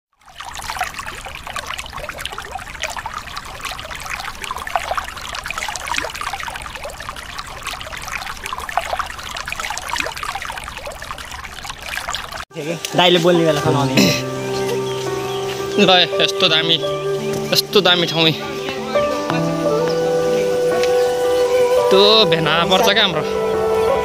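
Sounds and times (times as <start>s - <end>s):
river water bubbling over rocks: 0.2s - 12.5s.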